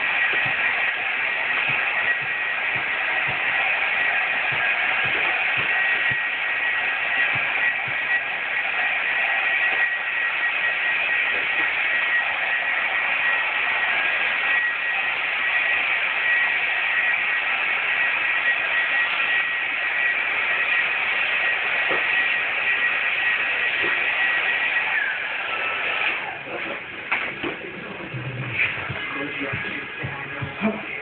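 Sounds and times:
heat gun air hissing: 0.0 - 12.4
high motor whine: 0.0 - 31.0.

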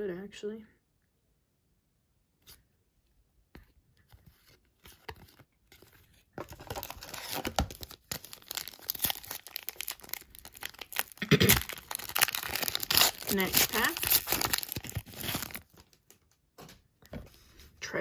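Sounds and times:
card pack wrapper crinkling: 4.8 - 16.3.

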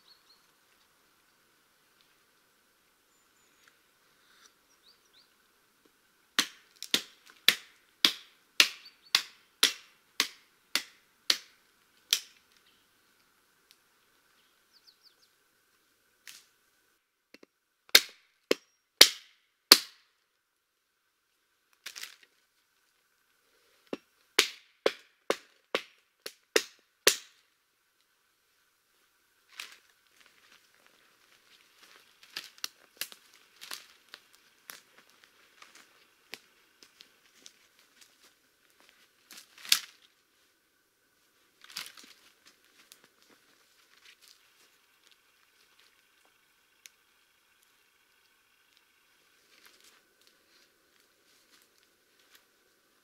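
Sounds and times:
axe chopping wood: 6.4 - 12.4, 17.4 - 20.0, 23.9 - 27.4.

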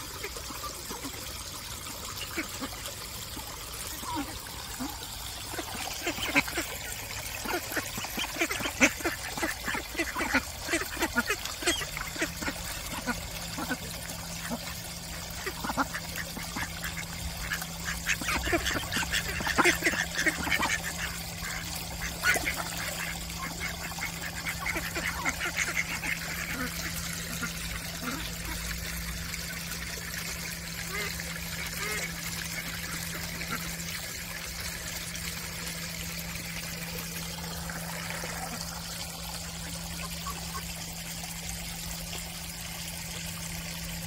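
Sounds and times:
duck bills dabbling in water: 0.0 - 43.9
ducks quacking: 3.9 - 28.6.

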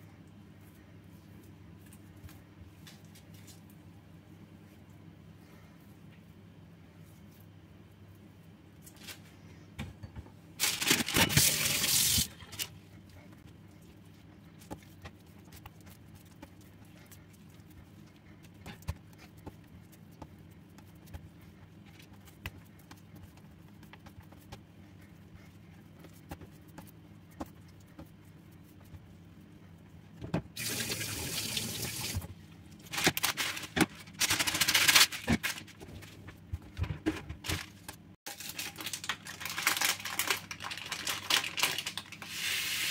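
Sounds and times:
steady low hum: 0.0 - 38.2
hands patting bread dough: 13.4 - 29.5.

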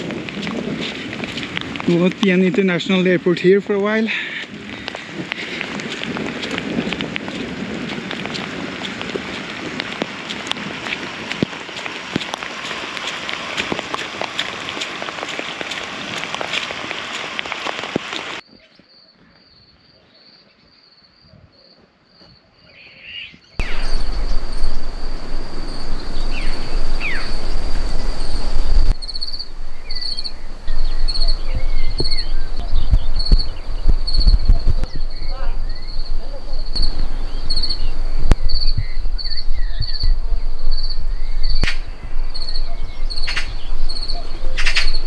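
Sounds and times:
rain falling: 0.0 - 18.4, 23.6 - 45.0
wind rumbling on microphone: 0.0 - 18.4, 23.5 - 45.0
short bird calls: 22.2 - 45.0
cricket chirping: 23.6 - 45.0.

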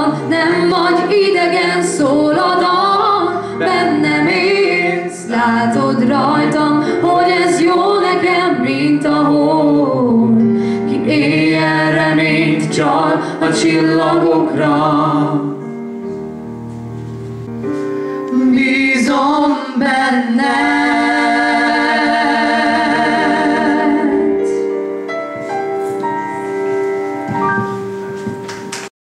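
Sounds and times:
woman and man singing a duet: 0.0 - 15.6, 18.3 - 24.6
sustained chordal accompaniment: 20.6 - 28.8.

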